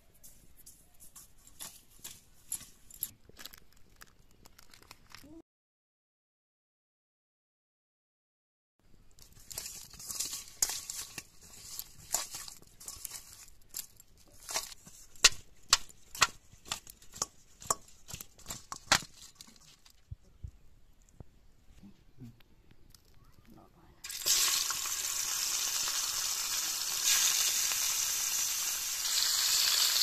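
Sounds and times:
plastic sachet crinkling: 3.2s - 5.4s, 9.1s - 15.2s, 18.4s - 20.0s
meat tapping in steel colander: 15.2s - 19.1s.

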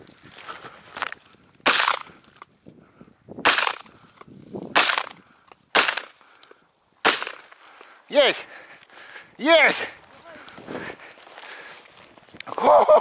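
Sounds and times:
shotgun shots: 1.6s - 2.1s, 3.4s - 3.9s, 4.8s - 6.1s, 7.0s - 7.5s.

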